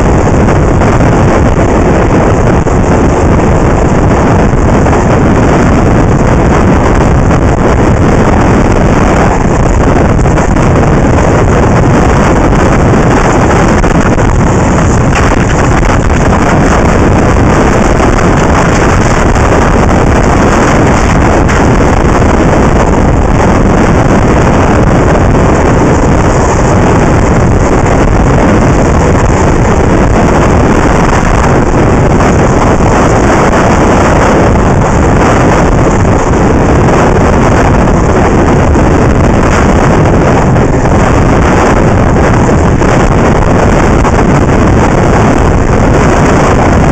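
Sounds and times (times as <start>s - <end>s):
wind rush on microphone: 0.0s - 46.9s
skates rolling on asphalt: 14.5s - 16.9s, 17.5s - 21.8s.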